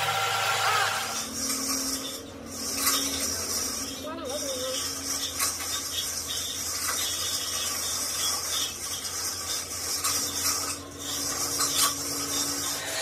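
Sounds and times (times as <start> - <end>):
lathe cutting tool rasping: 0.0 - 13.0
lathe hum: 0.0 - 13.0.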